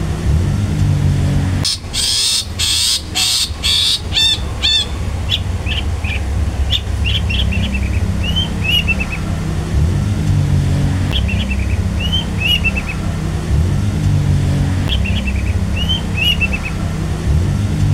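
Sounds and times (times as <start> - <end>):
low rumble: 0.0 - 17.9
bird calling: 1.6 - 9.5, 11.1 - 13.2, 14.9 - 16.8.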